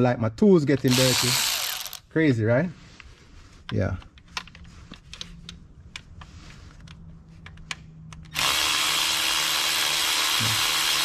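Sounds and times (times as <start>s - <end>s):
cordless driver running: 0.9s - 2.0s, 8.3s - 11.0s
tool handling clicks: 3.6s - 8.4s.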